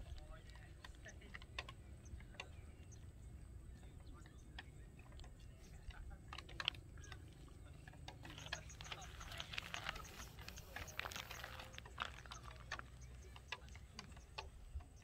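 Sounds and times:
small clicks and ticks: 0:00.0 - 0:15.0.

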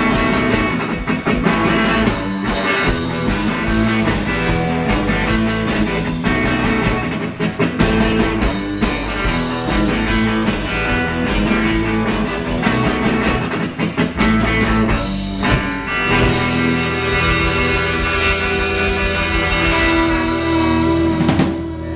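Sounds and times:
drum kit: 0:00.0 - 0:21.9
electric guitars: 0:00.0 - 0:21.9.

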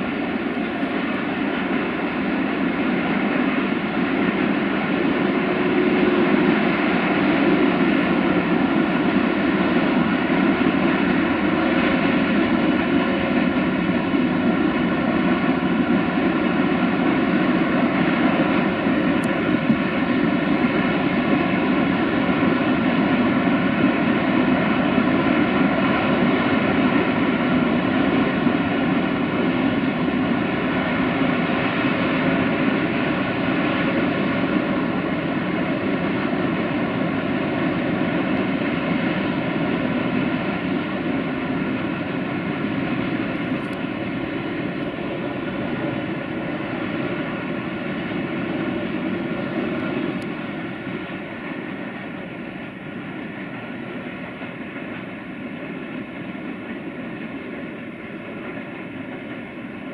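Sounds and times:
freight train rumbling by: 0:00.0 - 0:59.9.

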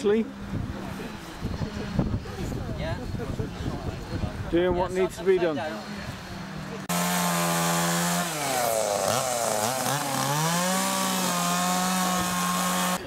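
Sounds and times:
chainsaw cutting log: 0:06.9 - 0:13.0.

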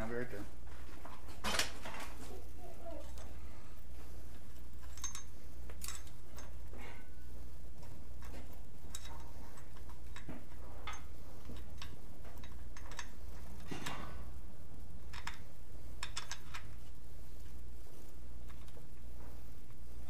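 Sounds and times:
steady low hum: 0:00.0 - 0:20.0
small metal parts clinking: 0:04.6 - 0:06.7, 0:08.2 - 0:14.1, 0:15.1 - 0:16.7.

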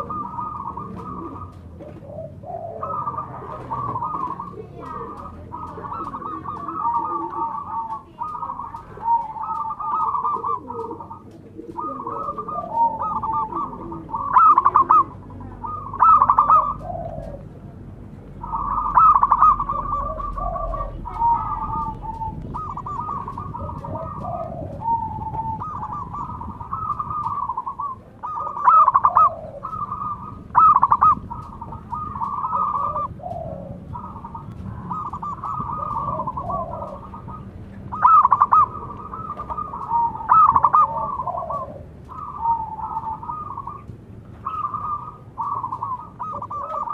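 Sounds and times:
doves cooing: 0:00.0 - 0:46.9.

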